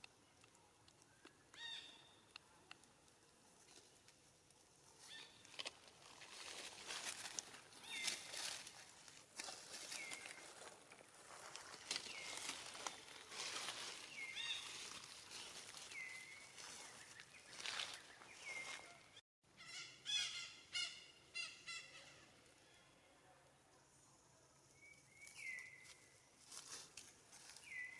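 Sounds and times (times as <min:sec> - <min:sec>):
faint outdoor ambience: 0:00.0 - 0:27.9
dry leaves rustling and crunching: 0:05.0 - 0:18.9, 0:25.3 - 0:27.8.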